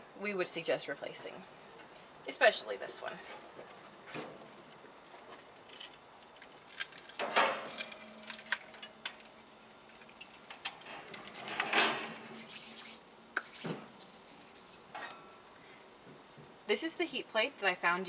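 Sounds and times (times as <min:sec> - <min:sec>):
thin sheet metal clinking: 0:06.6 - 0:09.3
metal plates scraping: 0:10.0 - 0:13.0.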